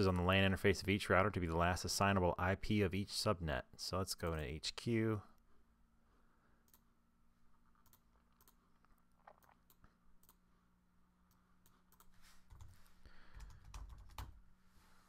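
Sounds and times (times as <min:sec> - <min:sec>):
computer mouse clicks: 0:07.8 - 0:08.6.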